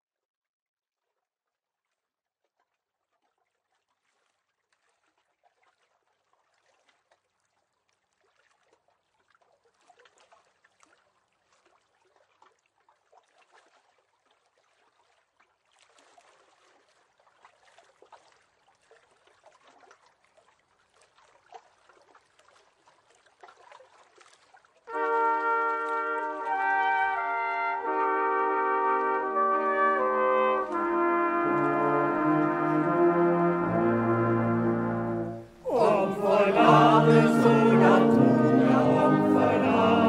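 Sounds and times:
small water splashes: 0:01.0 - 0:28.0
water trickling and lapping: 0:01.0 - 0:33.9.

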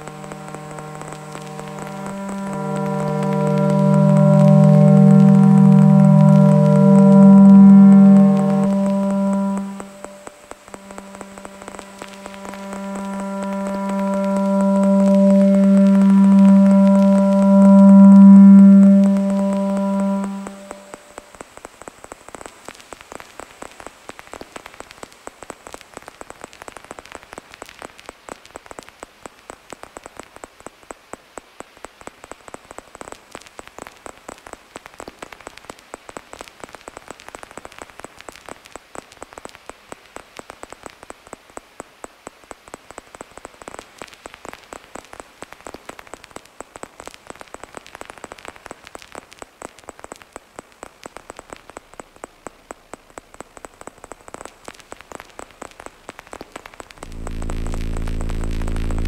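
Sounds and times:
faint steady high whine: 0:00.0 - 0:25.6, 0:51.8 - 0:59.0
crackling static clicks: 0:00.0 - 0:59.0.

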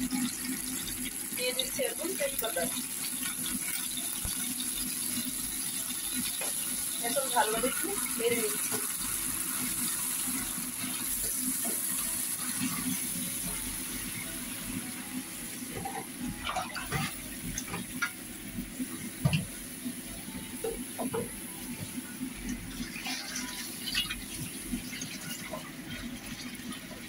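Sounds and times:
paste sizzling in hot oil: 0:00.0 - 0:18.9
spatula scraping and tapping pan: 0:15.7 - 0:18.2.

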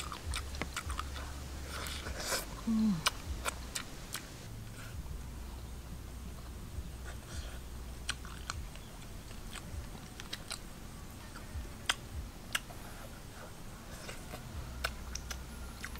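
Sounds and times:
lip smacks: 0:00.0 - 0:04.8, 0:07.0 - 0:10.7, 0:11.3 - 0:12.9, 0:13.9 - 0:15.9
chewing: 0:00.0 - 0:04.9, 0:06.4 - 0:15.9.

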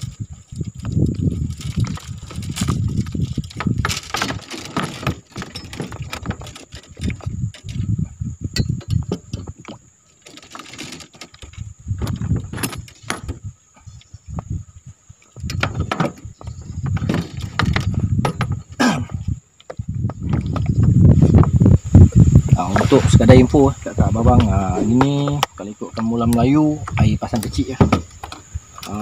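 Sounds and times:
wind rumble on microphone: 0:00.0 - 0:29.0
fishing tackle clicks and knocks: 0:00.6 - 0:07.9, 0:08.5 - 0:13.5, 0:15.3 - 0:18.8, 0:19.6 - 0:21.5.

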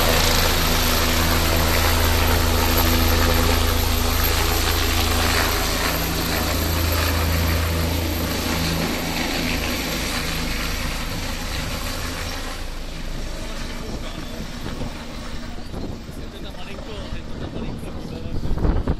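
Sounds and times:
helicopter flying away: 0:00.0 - 0:18.9.

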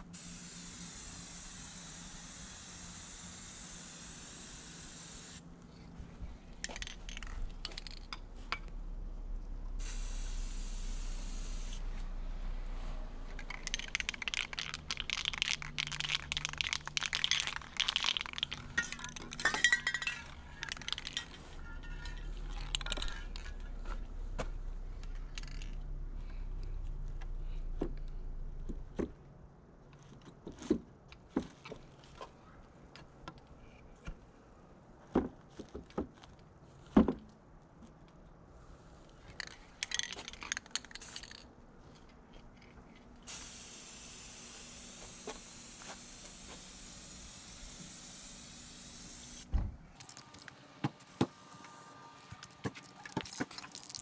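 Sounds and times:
spray can hissing: 0:00.2 - 0:05.4, 0:09.8 - 0:11.8, 0:13.5 - 0:18.8, 0:43.3 - 0:51.5, 0:52.2 - 0:54.0.

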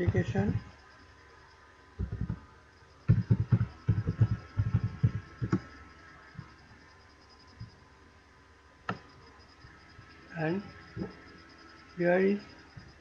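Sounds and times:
computer keyboard typing: 0:03.1 - 0:05.8.

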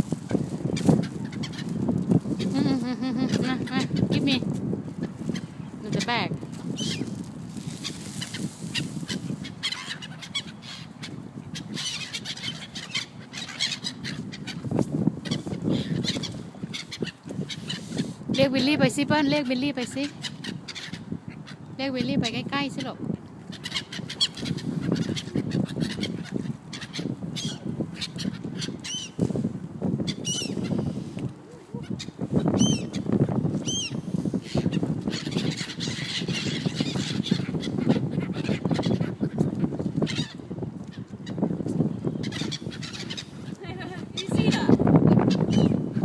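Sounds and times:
gulls squawking: 0:33.7 - 0:40.4, 0:42.2 - 0:45.8.

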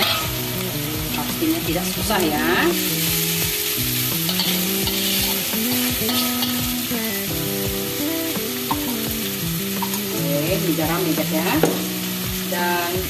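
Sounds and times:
metal spatula scraping pan: 0:00.0 - 0:00.4, 0:04.2 - 0:05.4, 0:06.0 - 0:06.6
food sizzling in a wok: 0:00.0 - 0:13.0.

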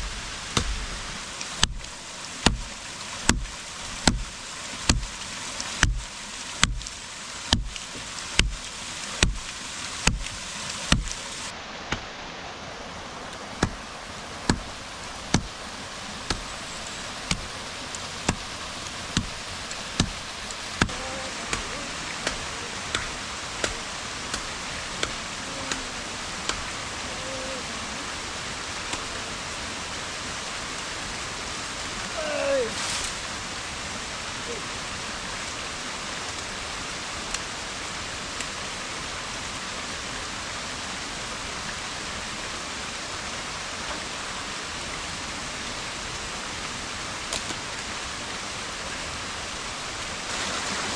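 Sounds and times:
blade chopping branches: 0:00.5 - 0:11.2, 0:13.6 - 0:15.6, 0:16.3 - 0:16.5, 0:17.2 - 0:17.5, 0:18.2 - 0:25.8.

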